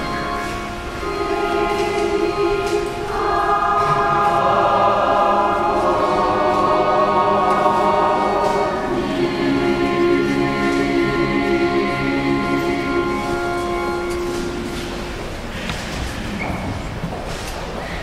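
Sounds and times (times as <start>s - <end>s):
choir singing held chords: 0.0s - 15.6s.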